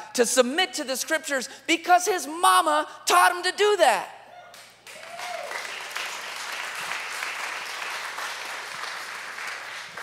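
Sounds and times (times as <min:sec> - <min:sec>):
congregation applauding: 0:04.6 - 0:10.0.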